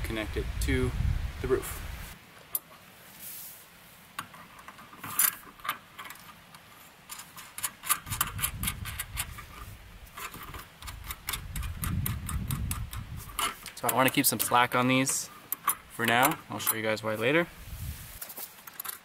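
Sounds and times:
metallic clicks of brackets: 10.2s - 16.9s.

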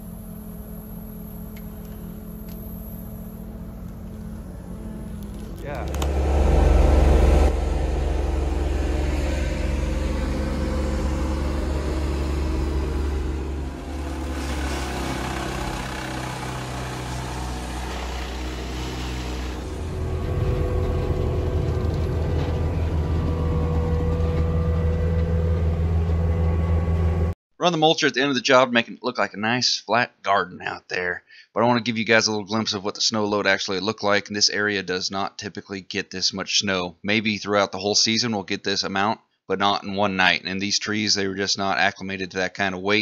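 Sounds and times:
wood chipper running: 0.0s - 27.3s
excavator engine running: 0.0s - 27.4s.

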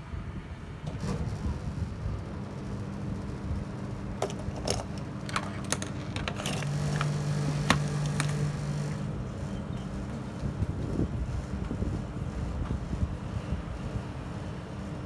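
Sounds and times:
metal parts clicking on workbench: 4.2s - 8.4s.

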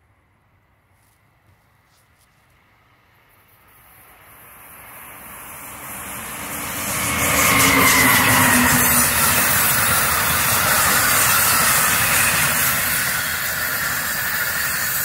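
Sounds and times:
passenger train passing at speed: 2.6s - 15.0s
locomotive whine: 4.4s - 15.0s.

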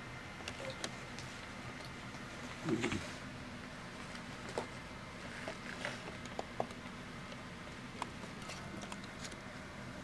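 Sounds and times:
steady low hum: 0.0s - 10.0s
small clicks and taps: 5.5s - 7.4s, 8.0s - 9.4s.

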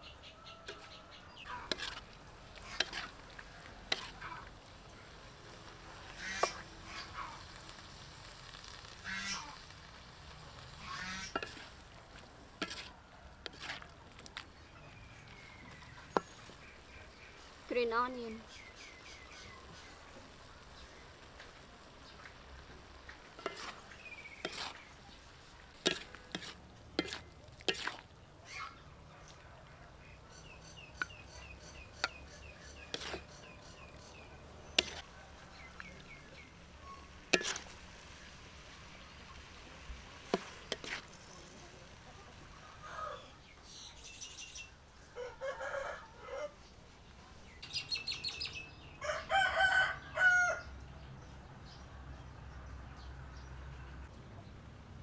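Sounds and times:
birds chirping: 0.0s - 7.6s, 14.0s - 26.4s, 27.0s - 37.5s, 45.7s - 54.7s
spatula scraping a wok: 0.7s - 14.6s, 22.3s - 28.1s, 31.0s - 36.0s, 37.0s - 41.7s
rooster crowing: 42.7s - 43.3s, 45.1s - 46.6s, 49.0s - 50.7s.

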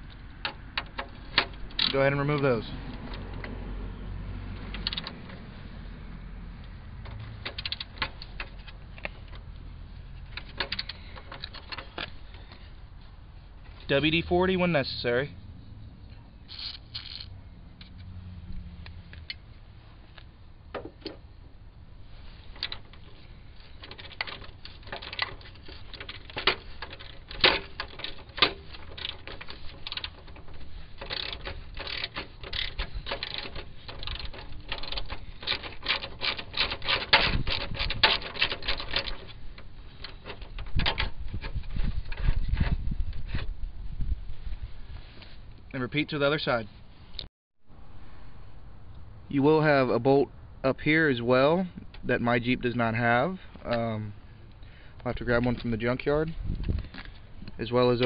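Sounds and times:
low rumble of handling: 0.0s - 58.0s
ratchet clicking: 16.5s - 18.0s, 22.6s - 41.5s.

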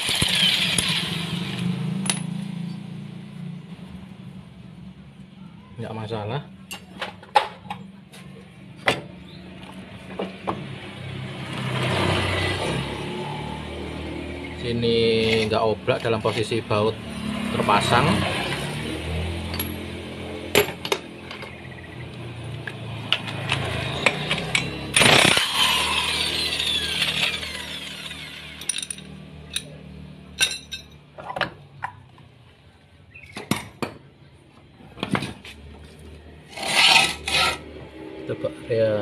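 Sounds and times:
metal parts clinking: 28.2s - 29.7s, 30.4s - 31.0s.

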